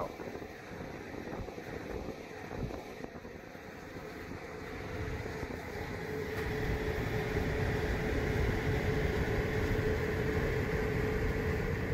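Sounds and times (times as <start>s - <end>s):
water heater compressor and fan hum: 0.0s - 11.9s.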